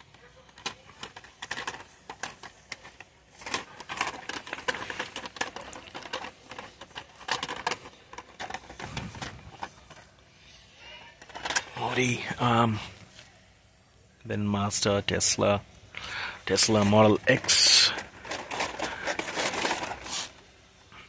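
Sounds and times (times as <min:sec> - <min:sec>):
plastic blister packs clicking: 0:00.0 - 0:10.0.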